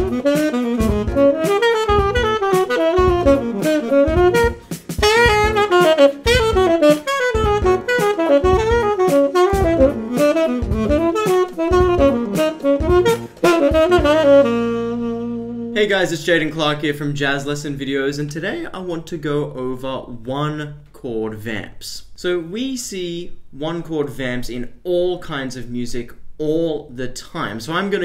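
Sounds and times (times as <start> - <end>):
tenor saxophone jazz line: 0.0 - 16.2.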